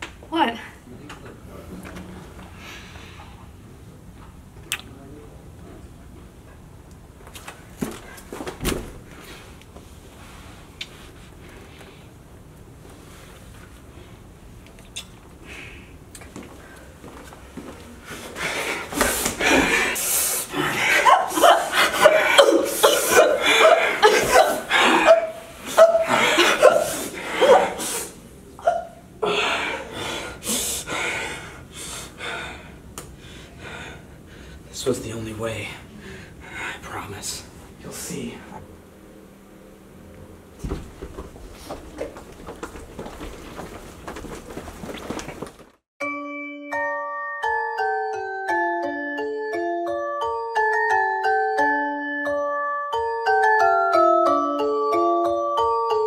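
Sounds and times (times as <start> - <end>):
people breathing heavily and gasping: 1.6 - 3.5, 15.4 - 34.7, 35.8 - 36.8, 40.7 - 45.8
footsteps on hard floor: 16.3 - 19.8, 40.6 - 45.8.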